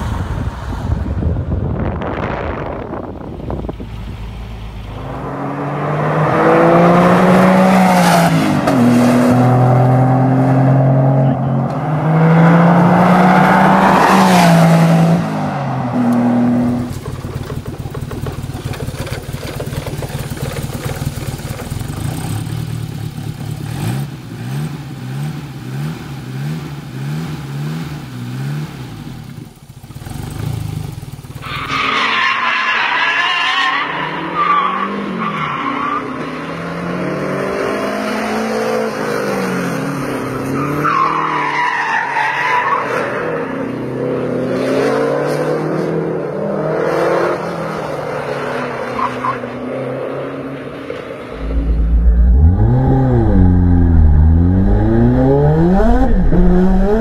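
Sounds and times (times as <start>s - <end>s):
car driven hard on track: 0.0s - 57.0s
car engine revving: 1.9s - 33.0s, 51.2s - 57.0s
car passing at speed: 4.9s - 17.0s.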